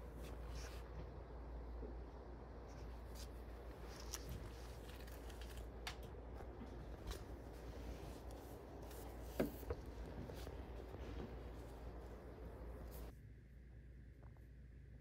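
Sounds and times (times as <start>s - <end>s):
books rustling and clicking: 3.2s - 13.1s.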